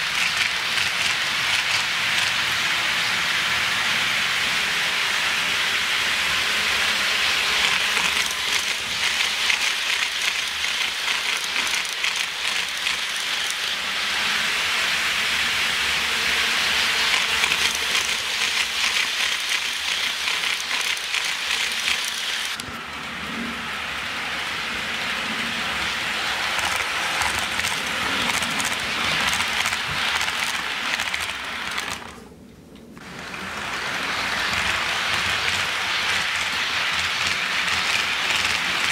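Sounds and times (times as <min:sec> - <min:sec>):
wheels clicking over track joints: 0:00.0 - 0:03.1, 0:06.9 - 0:13.8, 0:17.0 - 0:22.7, 0:25.4 - 0:38.9
model train rolling hiss: 0:00.0 - 0:32.3, 0:33.0 - 0:38.9.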